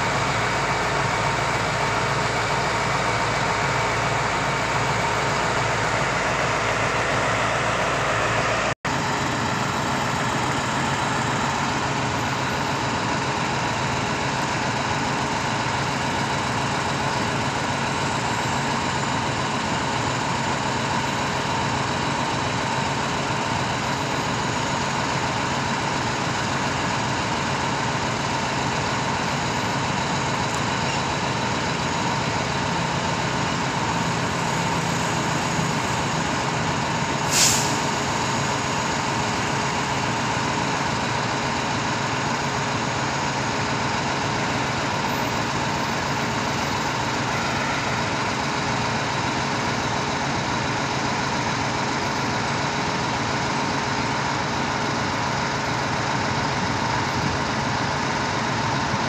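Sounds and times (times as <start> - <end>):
diesel engine running: 0.0 - 59.0
sharp hiss: 37.2 - 38.2.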